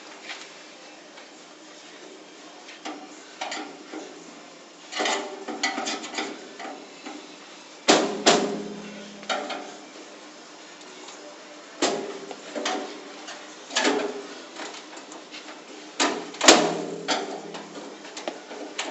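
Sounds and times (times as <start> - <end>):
knocks on metal locker: 7.9 - 9.5
loud metallic clangs ringing: 8.0 - 9.7.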